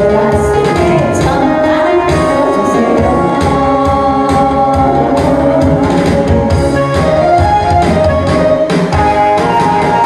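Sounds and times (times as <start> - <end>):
woman singing into a microphone: 0.0 - 7.2
backing track with steady beat: 0.0 - 10.0.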